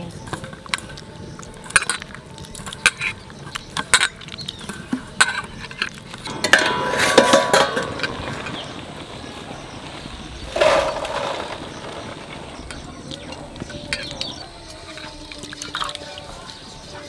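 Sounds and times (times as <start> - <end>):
metal lid clattering on pot: 6.3 - 8.6.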